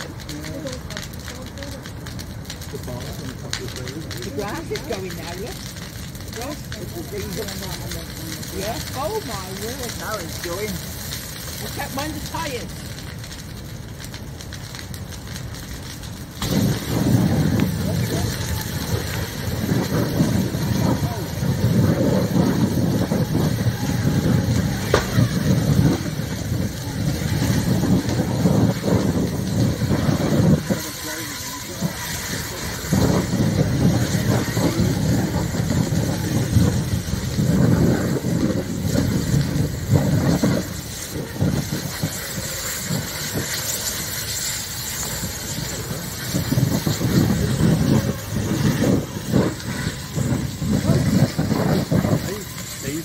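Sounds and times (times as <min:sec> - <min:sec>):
fire rumbling: 0:00.0 - 0:53.0
sharp pop: 0:24.9 - 0:25.2.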